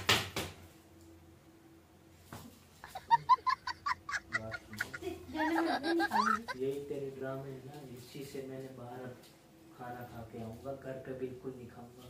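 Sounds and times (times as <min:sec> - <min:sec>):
high-pitched squawking cries: 0:02.9 - 0:06.6.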